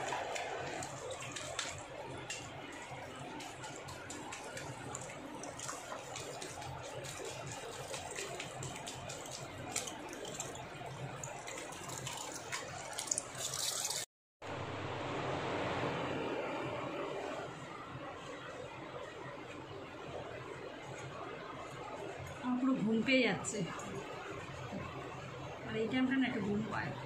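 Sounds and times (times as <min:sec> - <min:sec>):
shower sprayer water splashing: 0:00.0 - 0:14.1.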